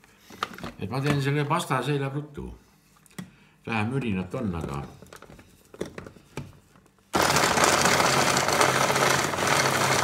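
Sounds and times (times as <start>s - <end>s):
hand blender chopping: 7.1s - 10.0s.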